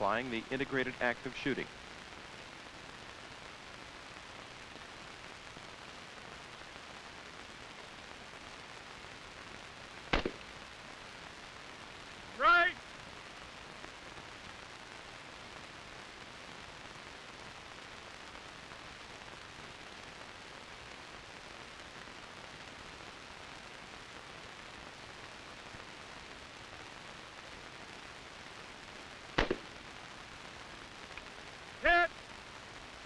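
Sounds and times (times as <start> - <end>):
old film soundtrack hiss: 0.0 - 33.0
rifle shot: 10.1 - 10.5, 29.4 - 29.8.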